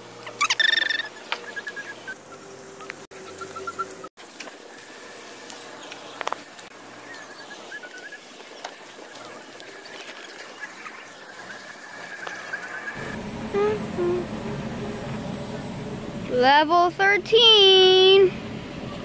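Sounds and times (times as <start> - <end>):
small birds chirping: 5.6 - 13.2.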